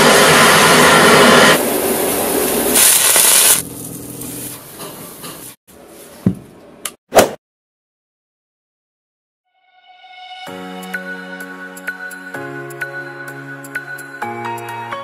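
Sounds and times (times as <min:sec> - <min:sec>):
gas torch flames hissing: 0:00.0 - 0:03.6.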